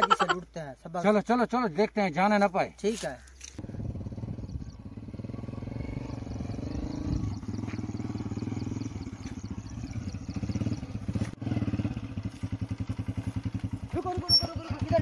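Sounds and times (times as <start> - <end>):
motorcycle engine running: 3.6 - 15.0.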